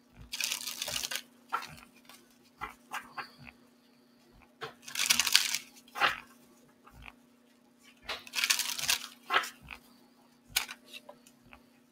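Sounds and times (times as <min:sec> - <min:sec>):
cards shuffling by hand: 0:00.3 - 0:03.3, 0:04.7 - 0:06.4, 0:08.1 - 0:09.6, 0:10.6 - 0:11.1.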